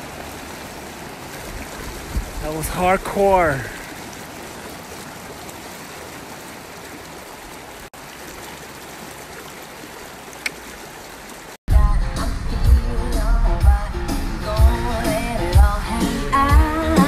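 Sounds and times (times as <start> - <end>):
flood water rushing: 0.0 - 11.6.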